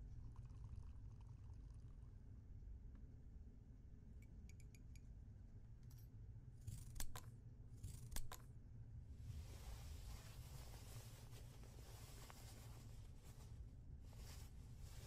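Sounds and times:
cloth rustling: 9.2 - 15.0.

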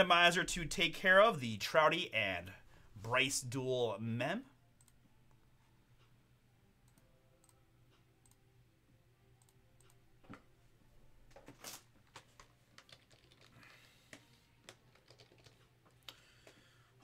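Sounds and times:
faint keyboard typing: 11.3 - 16.8.

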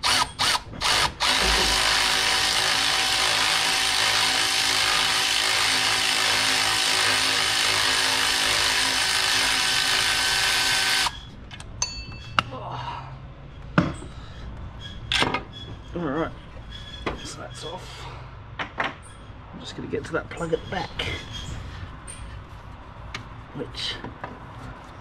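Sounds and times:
cordless power tool running: 0.0 - 11.2
parts clicking and knocking: 18.6 - 19.2.

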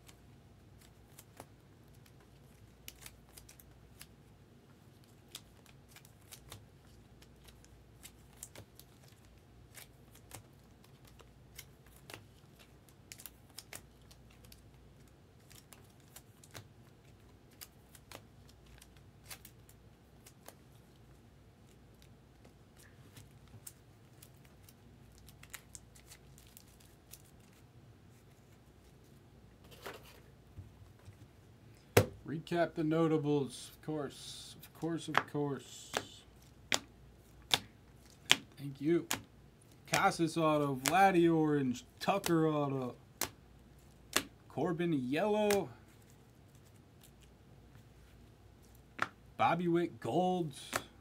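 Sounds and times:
cards clicking and snapping: 5.0 - 20.6, 35.0 - 39.3, 40.8 - 41.0, 44.1 - 44.4.

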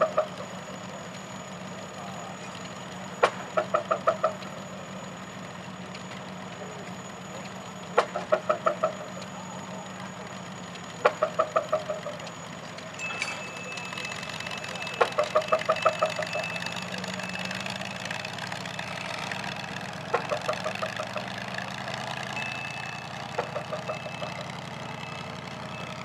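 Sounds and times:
tractor engine idling: 0.0 - 26.0.

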